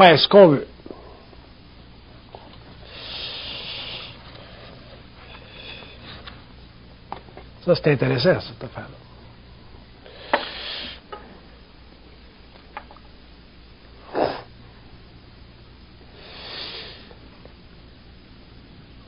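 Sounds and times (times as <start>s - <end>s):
faint low hum: 0.0s - 19.0s
man sniffing: 2.8s - 4.3s, 10.1s - 11.0s, 14.0s - 14.5s, 16.1s - 17.2s
man breathing: 2.8s - 6.4s, 10.0s - 11.1s, 16.1s - 17.2s.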